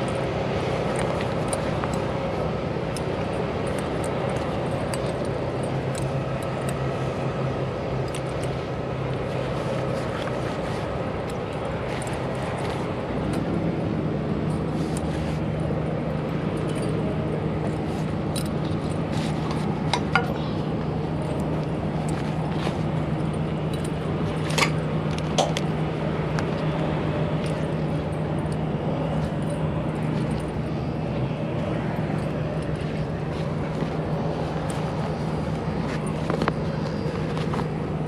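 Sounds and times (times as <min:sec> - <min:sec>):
low engine hum: 0:00.0 - 0:38.0
metal clinks of tarp hooks: 0:02.8 - 0:06.9, 0:16.4 - 0:25.8.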